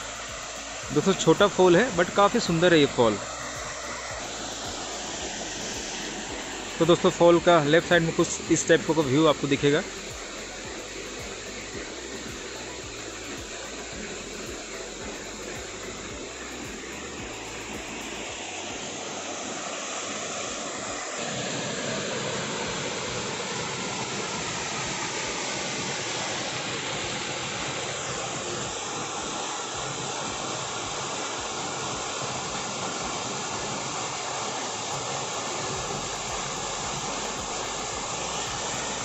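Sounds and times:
waterfall rushing: 0:00.0 - 0:39.0.

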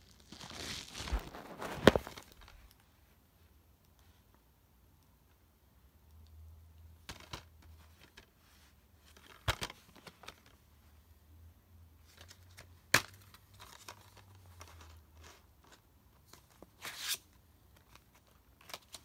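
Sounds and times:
plastic case rustling: 0:00.3 - 0:02.6.

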